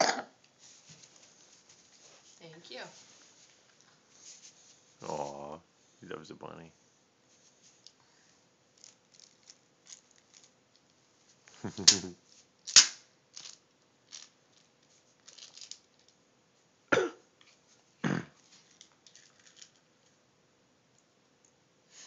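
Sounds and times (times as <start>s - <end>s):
plastic items clicking and rustling: 8.8s - 10.9s, 13.3s - 16.2s, 18.4s - 19.8s
sharp crack: 11.7s - 13.1s.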